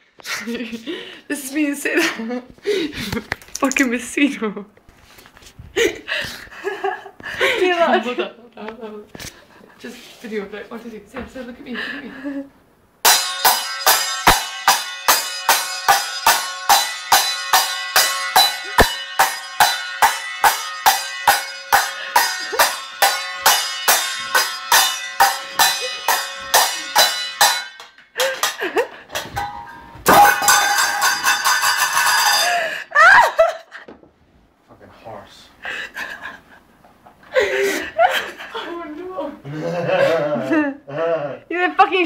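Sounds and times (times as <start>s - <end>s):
metal pots and pans clanging: 13.0s - 32.8s.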